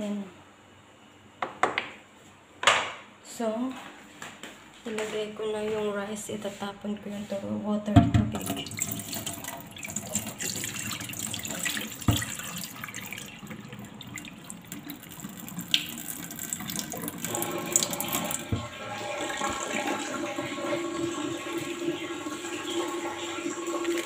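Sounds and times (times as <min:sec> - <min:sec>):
water spilling into steel sink: 0:08.3 - 0:24.0
tap running into plastic bowl: 0:11.9 - 0:12.6.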